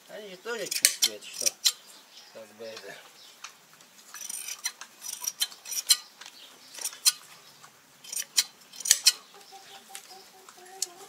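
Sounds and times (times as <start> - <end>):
hand shears snipping wool: 0.7 - 1.8.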